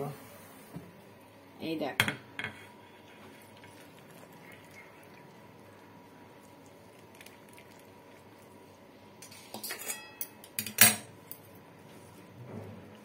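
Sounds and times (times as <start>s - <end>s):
metal pot and bowl clinking: 9.2s - 11.1s.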